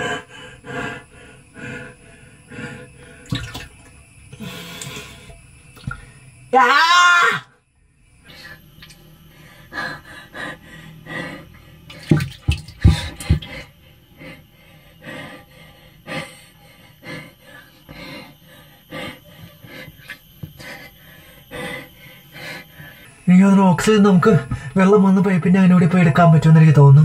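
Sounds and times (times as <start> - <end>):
water sloshing in tank: 3.2 - 4.0, 4.7 - 6.2, 11.9 - 13.7
bumps or splashes: 3.3 - 3.8, 11.9 - 13.6.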